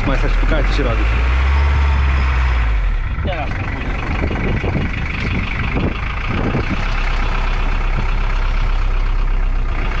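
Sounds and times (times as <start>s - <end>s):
van engine running: 0.0s - 10.0s.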